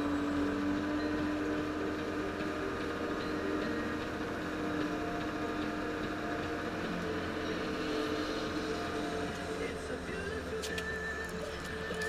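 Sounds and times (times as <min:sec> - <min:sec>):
diesel engine droning: 0:00.0 - 0:12.0.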